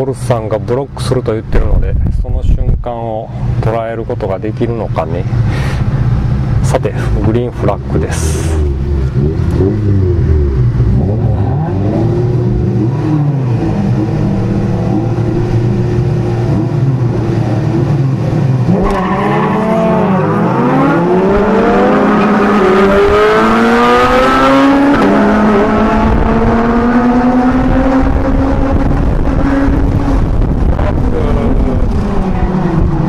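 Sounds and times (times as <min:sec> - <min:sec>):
car engine accelerating: 0:03.5 - 0:33.0.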